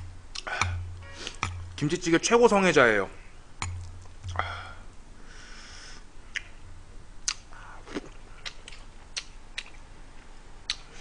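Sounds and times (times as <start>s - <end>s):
short sharp mouth clicks and smacks: 0.3s - 1.6s, 6.3s - 6.6s, 7.2s - 7.5s, 8.4s - 9.8s, 10.6s - 11.0s
person chewing food: 0.3s - 1.8s, 3.6s - 4.5s, 7.2s - 9.9s, 10.6s - 11.0s.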